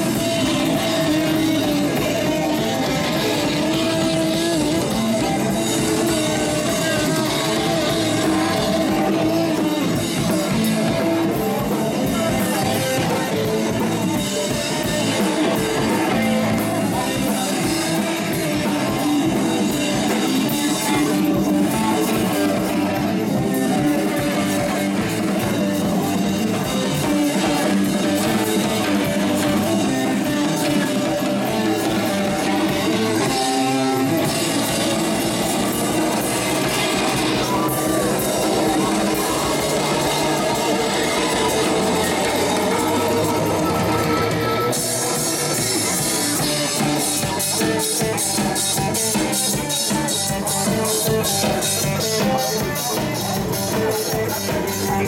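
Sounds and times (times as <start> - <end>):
person singing: 0.0 - 55.0
rock band over loudspeakers: 0.0 - 55.0.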